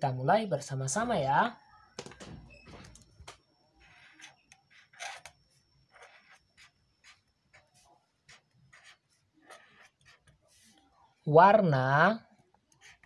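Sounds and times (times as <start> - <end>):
marker scratching on paper: 3.8 - 5.3, 5.9 - 10.8, 12.7 - 13.0.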